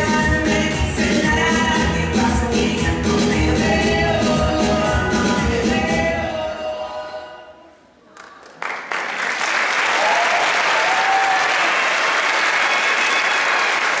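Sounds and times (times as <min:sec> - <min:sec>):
dance music: 0:00.0 - 0:07.2
audience applause: 0:08.2 - 0:14.0
people cheering: 0:08.6 - 0:14.0.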